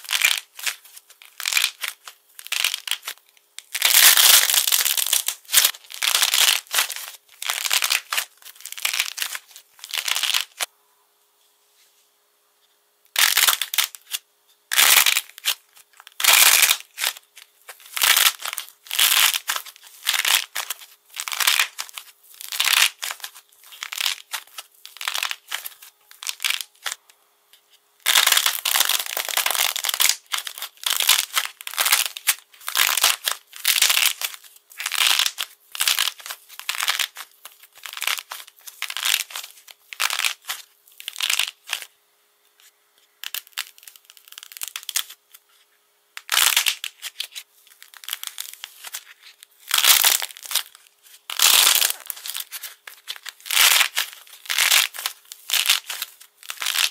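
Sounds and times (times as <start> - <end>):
clay coating cracking: 49.7 - 56.9.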